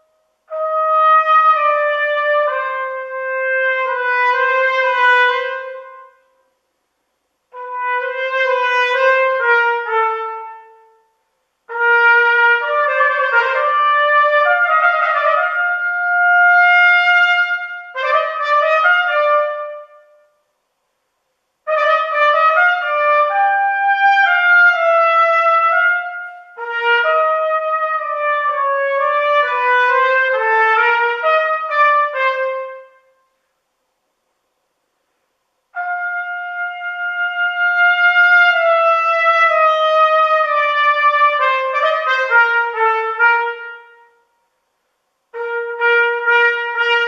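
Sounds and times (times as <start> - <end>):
solo trumpet melody: 0.0 - 6.6, 7.5 - 20.5, 21.6 - 33.5, 35.7 - 44.5, 45.3 - 47.0.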